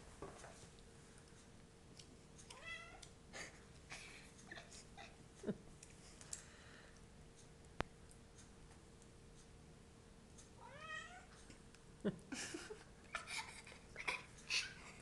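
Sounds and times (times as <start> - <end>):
cat meowing: 10.6 - 11.3.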